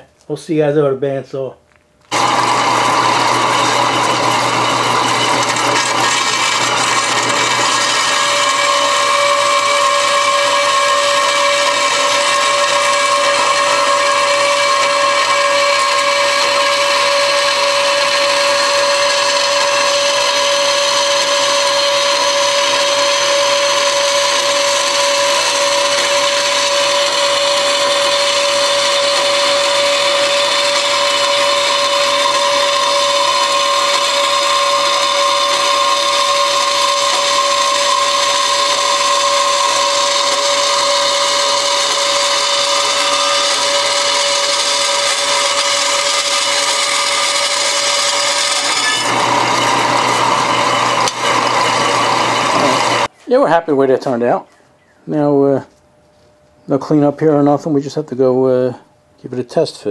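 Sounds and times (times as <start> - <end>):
bandsaw cutting steel: 2.1 - 53.1
pitched whine: 2.1 - 53.1.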